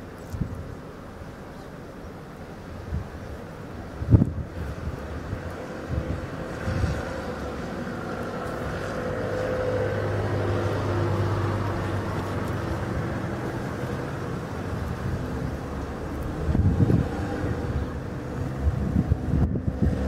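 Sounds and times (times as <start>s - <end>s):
car driving past: 4.6s - 20.0s.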